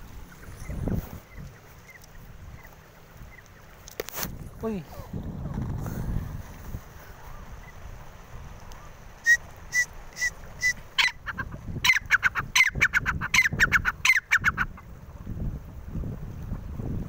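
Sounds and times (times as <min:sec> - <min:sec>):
partridge calling: 0:00.0 - 0:03.8, 0:08.8 - 0:14.8.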